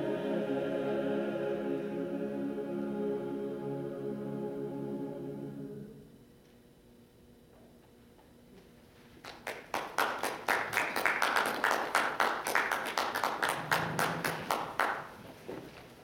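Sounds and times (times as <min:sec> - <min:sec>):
audience applauding: 0:09.2 - 0:15.2.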